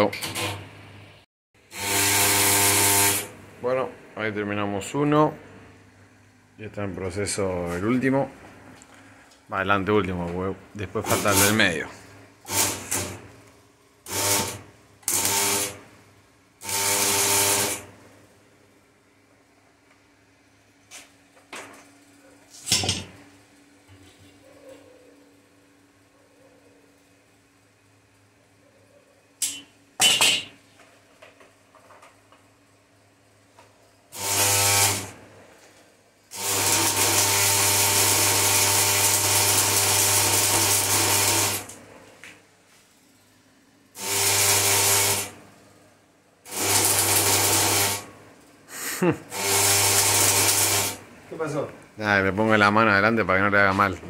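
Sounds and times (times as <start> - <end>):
welder steady buzz: 0.0 - 24.4, 29.4 - 54.0
arc welder crackling hiss: 1.6 - 3.4, 10.8 - 18.4, 33.5 - 52.8.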